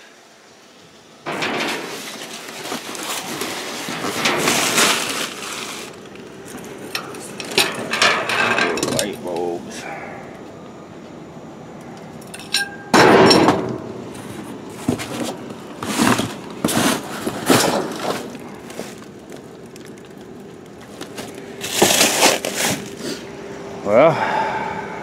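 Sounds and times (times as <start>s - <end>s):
rummaging through boxes: 1.3s - 9.5s, 14.0s - 23.2s.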